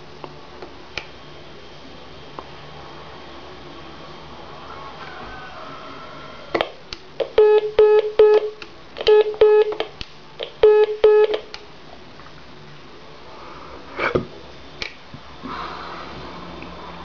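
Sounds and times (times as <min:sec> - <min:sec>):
phone line hiss: 0:07.4 - 0:09.8, 0:10.6 - 0:11.4.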